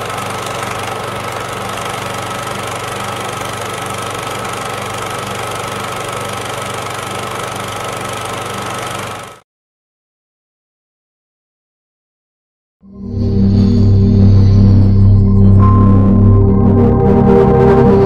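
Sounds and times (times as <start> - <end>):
film projector whirring and clattering: 0.0 - 9.4.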